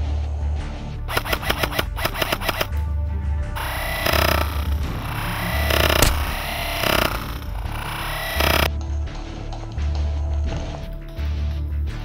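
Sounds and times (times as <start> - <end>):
sharp crack: 4.2 - 7.7.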